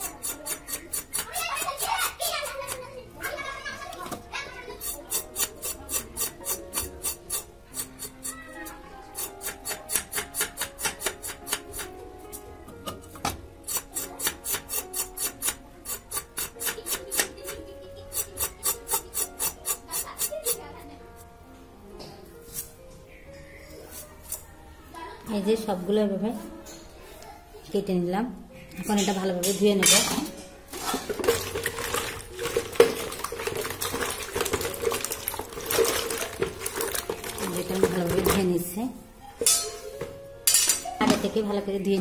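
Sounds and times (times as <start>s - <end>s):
carrot skin scraped on blade: 4.8s - 8.3s, 13.6s - 17.3s
kitchen containers clattering: 28.8s - 38.8s, 39.4s - 41.6s.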